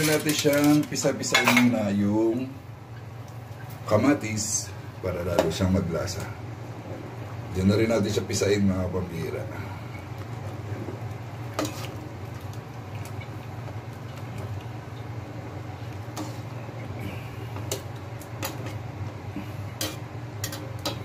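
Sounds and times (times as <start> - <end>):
ladle stirring in boiling broth: 9.4 - 21.0.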